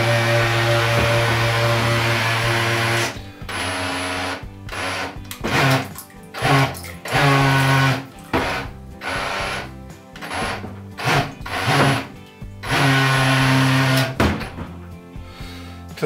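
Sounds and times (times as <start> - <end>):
electric motor and propeller bursts: 6.4 - 14.2.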